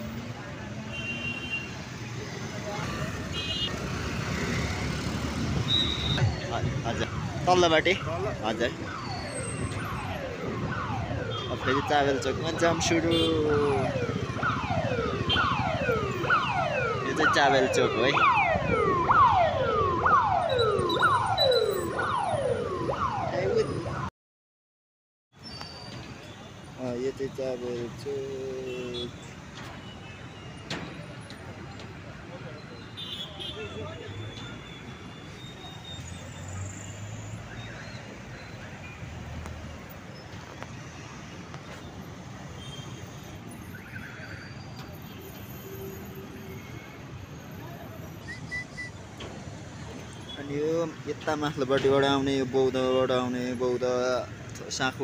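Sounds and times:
motorcycles cars and buses passing: 0:00.0 - 0:23.4, 0:30.9 - 0:55.0
traffic rumble: 0:00.0 - 0:24.1, 0:25.4 - 0:55.0
vehicle siren: 0:04.3 - 0:24.1, 0:33.5 - 0:41.4, 0:42.1 - 0:50.8.

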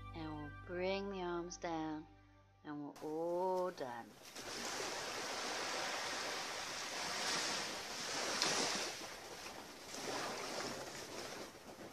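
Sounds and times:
small waves washing onto shore: 0:03.5 - 0:11.9.

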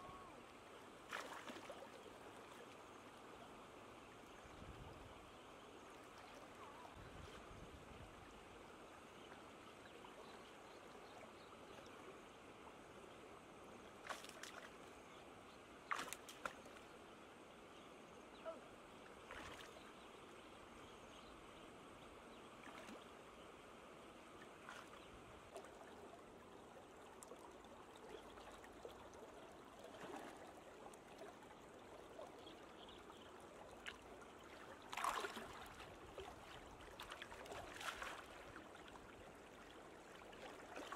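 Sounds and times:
wading through shallow water: 0:00.0 - 0:40.9
sharp water splashes: 0:01.1 - 0:01.8, 0:15.9 - 0:16.7, 0:34.9 - 0:36.3.

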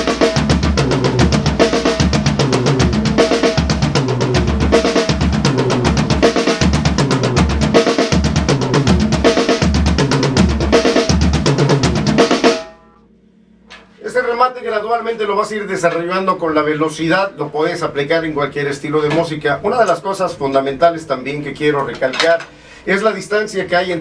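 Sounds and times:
drum kit fill on toms and snare: 0:00.0 - 0:13.0, 0:13.6 - 0:14.2, 0:18.7 - 0:22.6.

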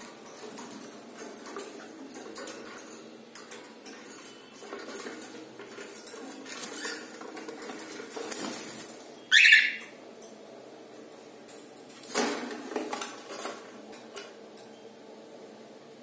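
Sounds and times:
cockatiel squawk: 0:09.3 - 0:09.8.

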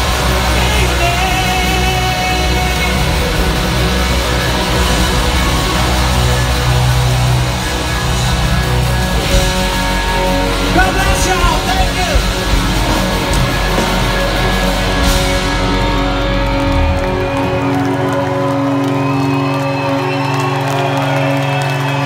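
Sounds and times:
rock band playing live: 0:00.0 - 0:22.0.

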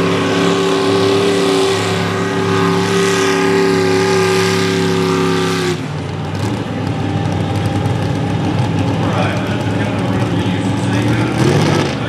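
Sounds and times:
tractor engine running under load: 0:03.9 - 0:12.0.

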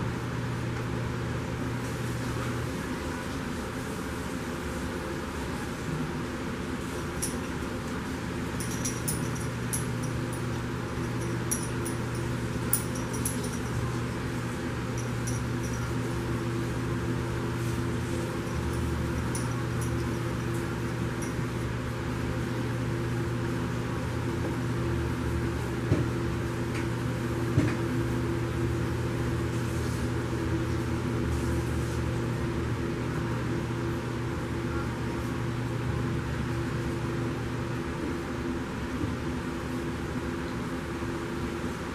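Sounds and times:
low mechanical hum: 0:00.0 - 0:41.9.

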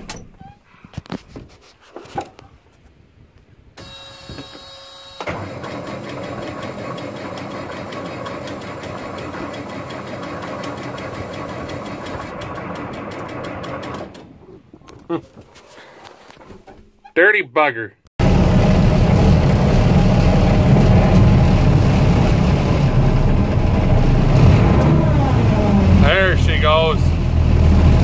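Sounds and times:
starter whine: 0:03.8 - 0:14.4, 0:18.2 - 0:28.0
diesel engine cranking: 0:05.2 - 0:15.0, 0:18.2 - 0:28.0.

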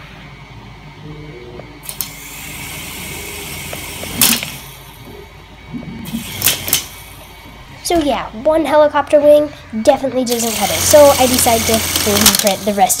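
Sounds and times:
toy helicopter rotors whirring: 0:10.3 - 0:13.0.

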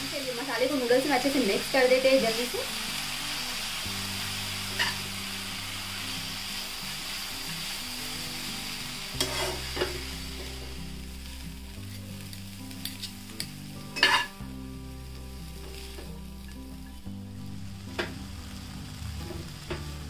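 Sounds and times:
noodles sizzling: 0:00.0 - 0:20.0
spatulas clacking and scraping pan: 0:09.2 - 0:10.0, 0:14.0 - 0:14.3.

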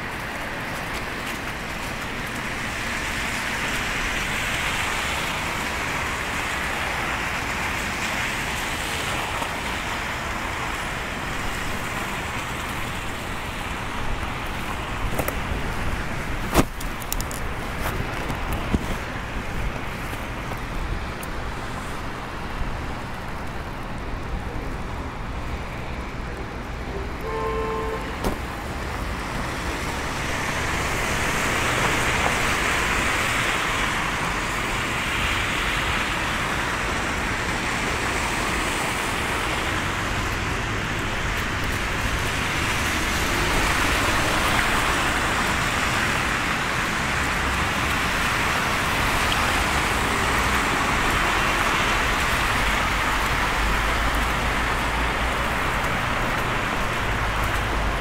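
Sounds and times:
tyres hissing on wet snow: 0:29.5 - 0:58.0.

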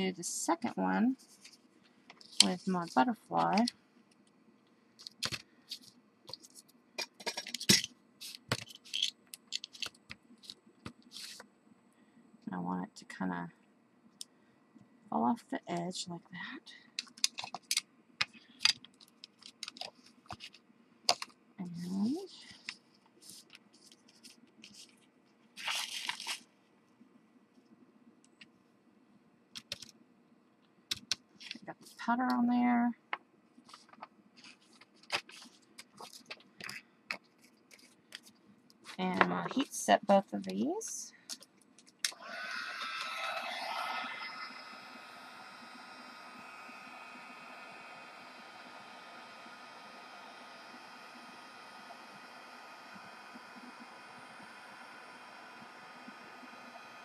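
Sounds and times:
paper rustling: 0:22.5 - 0:26.5, 0:33.6 - 0:39.7.

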